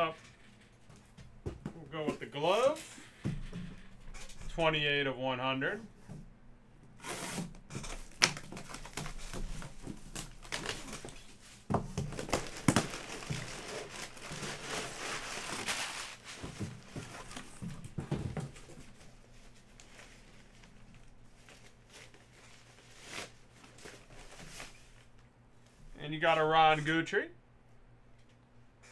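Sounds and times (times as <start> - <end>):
packing paper crumpling: 7.1 - 17.6.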